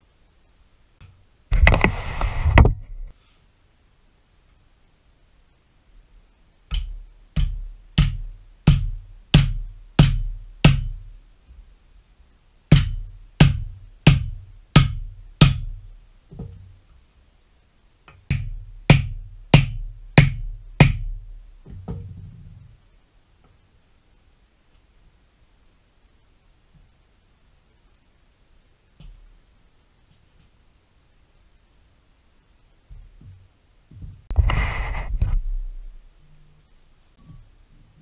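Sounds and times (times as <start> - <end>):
mallet thumping wooden block: 6.7 - 11.0, 12.7 - 16.6.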